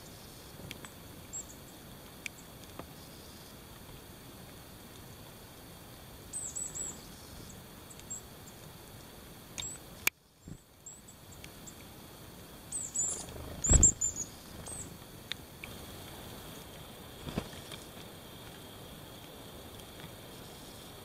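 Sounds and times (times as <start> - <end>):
bird chirping high and thin: 12.8 - 14.9.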